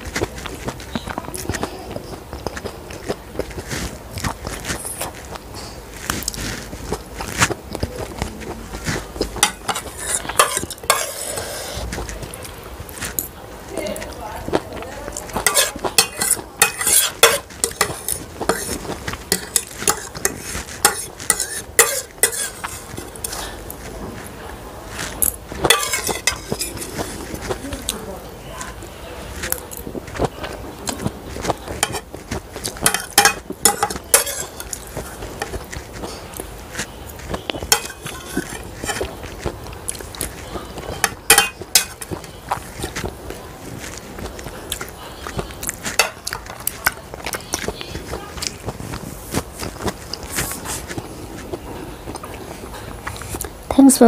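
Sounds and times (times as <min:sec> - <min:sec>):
eating sounds: 0:00.0 - 0:53.7
fork scraping ceramic plate: 0:08.8 - 0:12.3, 0:15.2 - 0:24.3, 0:25.0 - 0:27.6, 0:30.8 - 0:43.1, 0:43.7 - 0:48.7.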